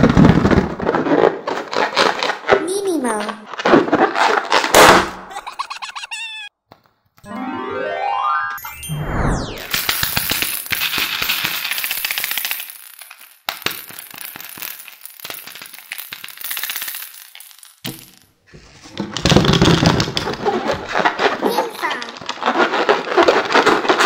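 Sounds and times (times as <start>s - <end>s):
low sound: 7.2s - 9.9s
plastic toy rattling and clicking: 9.7s - 17.9s, 19.1s - 24.0s.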